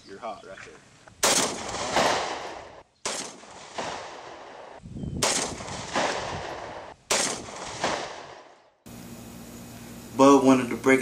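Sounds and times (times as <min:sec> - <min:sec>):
gunshots with ringing tail: 0:01.2 - 0:08.7.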